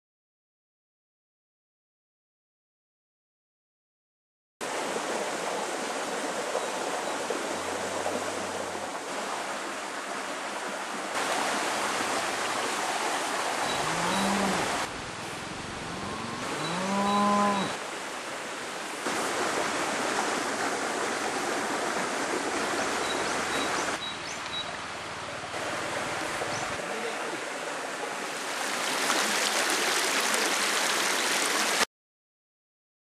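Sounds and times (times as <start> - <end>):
stream rushing: 4.6 - 31.9
cow mooing: 13.7 - 14.8, 15.8 - 17.8.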